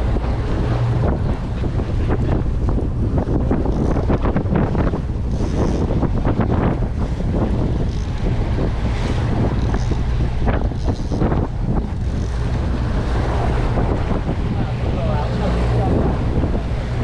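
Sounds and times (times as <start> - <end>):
boat motor rumble: 0.0 - 17.0
water rushing: 0.0 - 17.0
wind buffeting microphone: 0.0 - 17.0.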